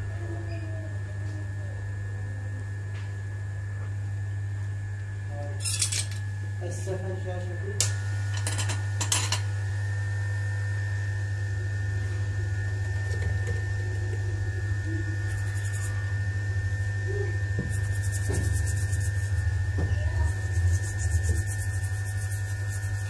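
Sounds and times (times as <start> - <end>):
electrical hum: 0.0 - 23.0
thin high whine: 7.8 - 23.0
rapid scratchy rustle: 20.2 - 23.0.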